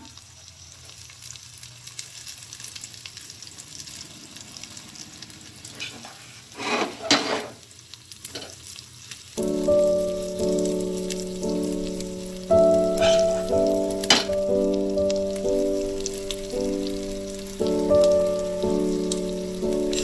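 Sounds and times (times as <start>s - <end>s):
batter sizzling in a pan: 0.0s - 20.0s
spatula scraping a pan: 5.8s - 7.6s, 13.0s - 13.3s
background music: 9.4s - 20.0s.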